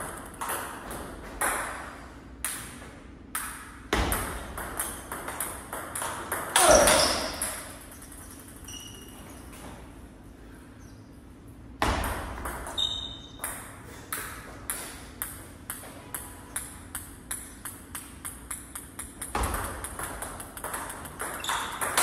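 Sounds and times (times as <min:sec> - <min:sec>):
table tennis ball clicking: 0:13.4 - 0:22.0.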